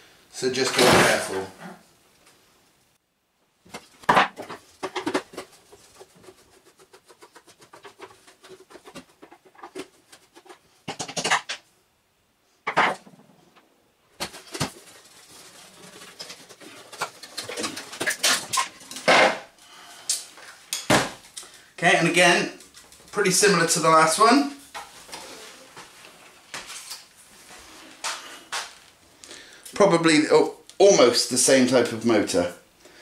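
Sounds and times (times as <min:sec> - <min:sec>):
knocks and scrapes: 0:03.7 - 0:11.6, 0:14.2 - 0:19.5.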